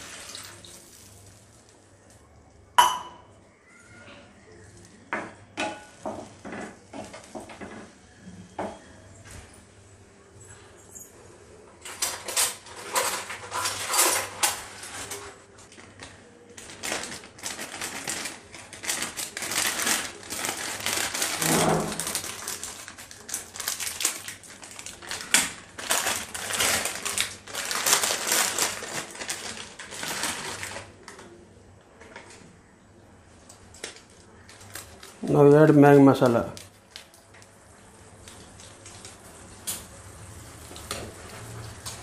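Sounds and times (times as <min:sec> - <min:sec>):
plastic packaging crinkling: 0:00.0 - 0:02.4, 0:12.1 - 0:31.4, 0:33.4 - 0:42.0.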